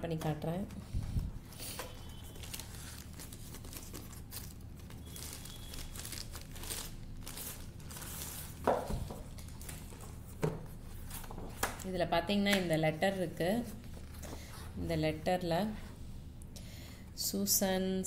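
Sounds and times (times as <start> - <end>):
plastic bag crinkling: 1.8 - 10.3.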